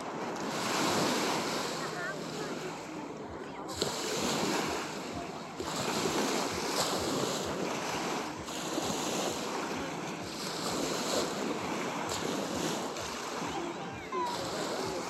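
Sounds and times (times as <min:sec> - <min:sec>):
surf hissing on shore: 0:00.0 - 0:15.0
wind on microphone: 0:03.7 - 0:15.0.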